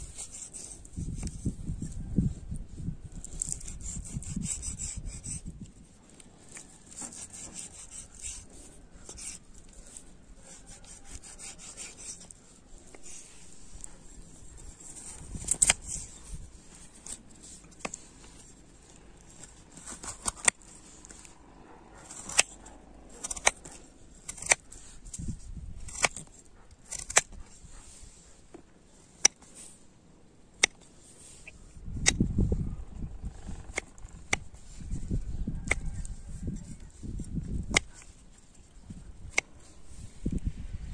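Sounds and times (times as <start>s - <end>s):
knife slicing vegetables: 9.1s - 14.2s, 22.1s - 24.8s, 25.8s - 27.8s.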